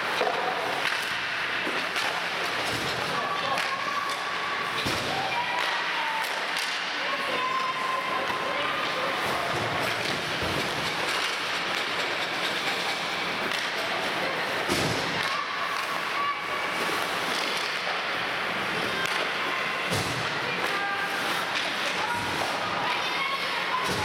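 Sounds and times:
hockey sticks and puck knocking: 0.0s - 7.0s, 9.5s - 14.0s, 16.8s - 18.1s.

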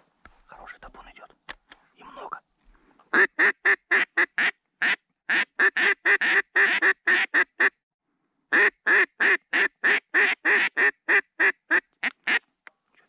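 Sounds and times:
duck call quacks: 3.1s - 7.8s, 8.5s - 12.4s.

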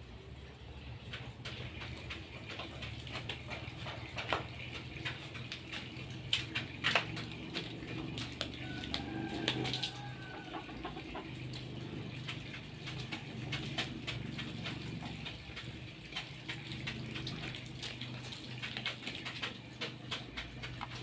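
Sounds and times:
chicken clucking: 8.5s - 11.9s.

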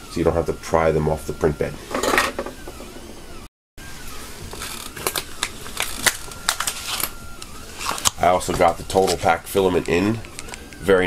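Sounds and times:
objects handled with clicks and knocks: 4.5s - 10.8s.

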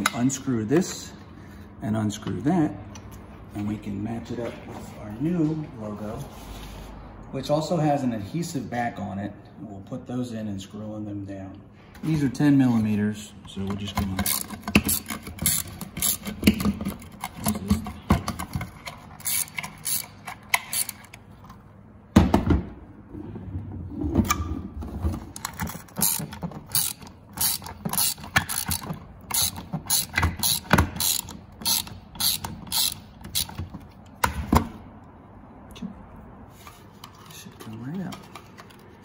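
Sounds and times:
ratchet wrench clicking: 14.2s - 16.6s, 18.9s - 21.2s, 25.4s - 33.7s.

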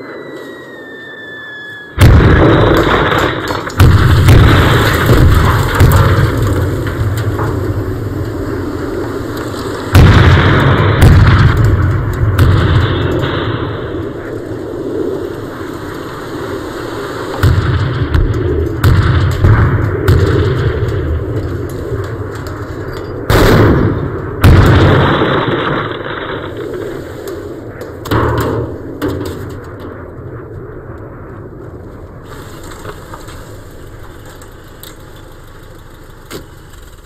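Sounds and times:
explosions with low rumble: 1.0s - 37.0s.

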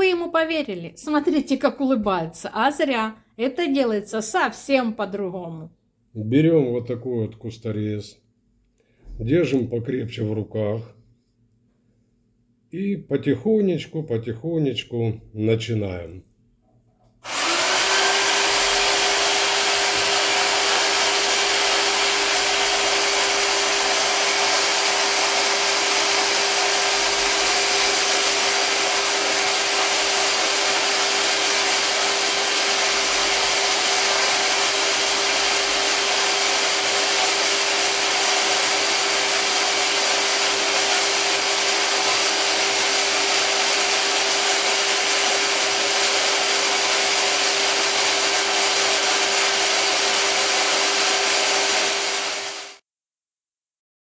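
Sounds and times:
electric hedge trimmer running: 17.2s - 52.8s.

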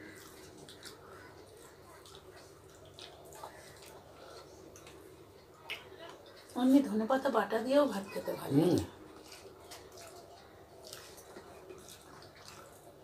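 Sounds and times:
fingers mixing wet rice: 0.0s - 6.0s, 8.7s - 13.0s
people chewing: 0.0s - 6.9s, 8.2s - 13.0s
lip smacks: 2.0s - 5.9s.

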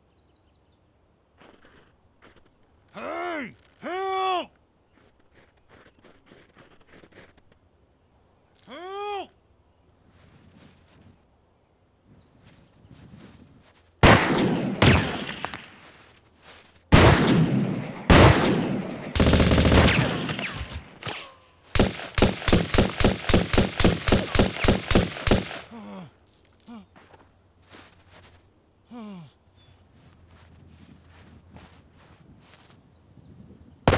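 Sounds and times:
gunshots: 14.0s - 15.8s, 16.9s - 25.7s
rapid gunfire: 16.9s - 20.6s, 21.8s - 25.7s.

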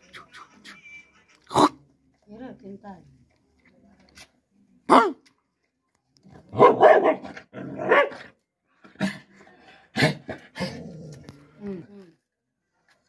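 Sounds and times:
large dog barking and growling: 6.4s - 8.4s, 9.9s - 11.6s.

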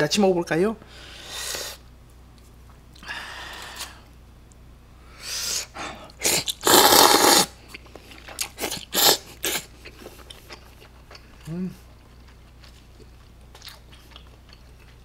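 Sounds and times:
person slurping noodles: 5.3s - 7.6s, 8.4s - 9.7s
chewing smacks: 7.6s - 15.0s.

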